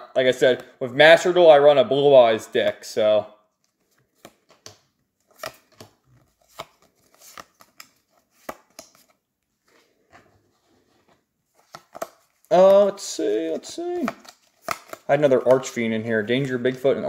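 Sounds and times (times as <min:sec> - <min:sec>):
light card rustling: 0:03.6 - 0:17.0.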